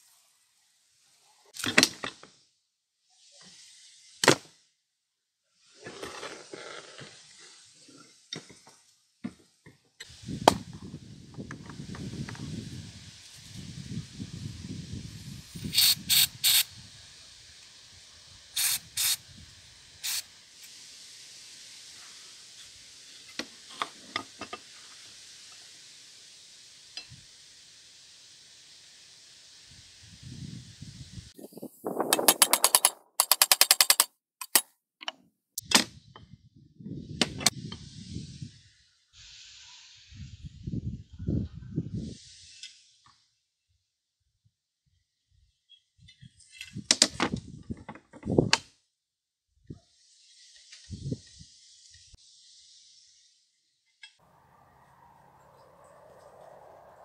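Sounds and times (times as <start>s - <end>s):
aerosol spray hissing: 10.0s - 32.8s, 37.5s - 40.6s, 49.9s - 53.5s
metal parts being handled: 32.1s - 34.6s.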